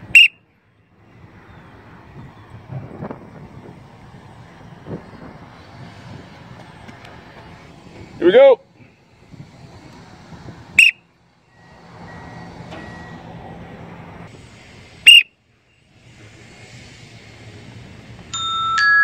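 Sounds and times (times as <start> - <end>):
whistle blasts: 0.0 - 0.5, 10.8 - 13.2, 15.0 - 15.4
chiming glockenspiel music: 18.3 - 19.0.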